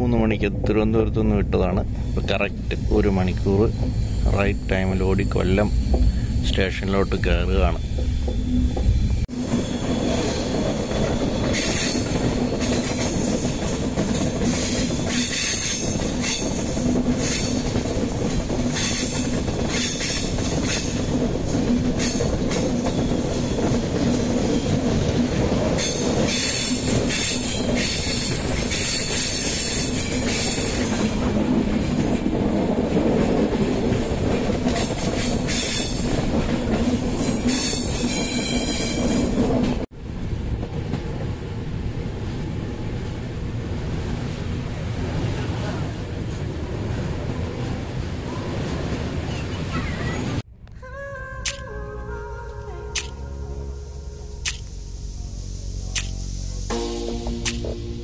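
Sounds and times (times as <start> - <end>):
train rumbling on rails: 0.0 - 58.0
train wheels squealing: 2.0 - 17.8, 18.7 - 21.1, 25.7 - 31.1, 34.8 - 36.2, 36.8 - 39.4.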